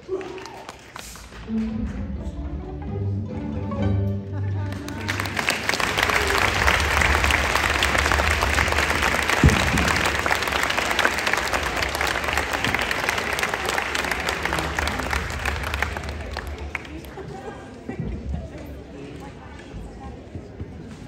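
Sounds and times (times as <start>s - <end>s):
audience applauding: 0.0s - 1.9s, 4.7s - 17.9s.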